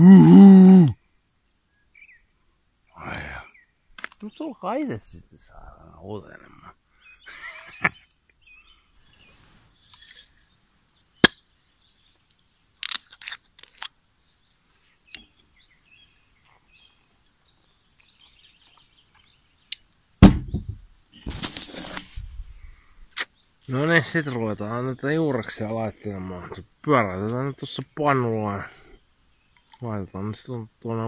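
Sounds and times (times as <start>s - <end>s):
faint bird chirps: 1.0s - 4.6s, 5.5s - 12.6s
loud thump: 20.2s - 20.9s
short rustle: 21.2s - 23.8s.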